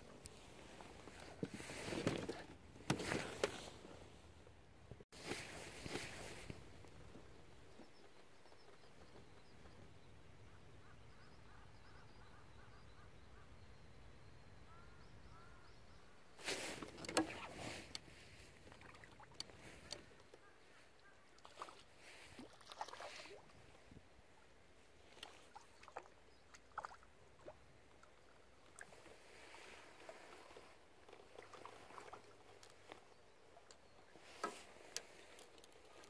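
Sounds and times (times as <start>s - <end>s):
faint outdoor background: 0.0s - 36.0s
water splashing: 22.4s - 23.5s.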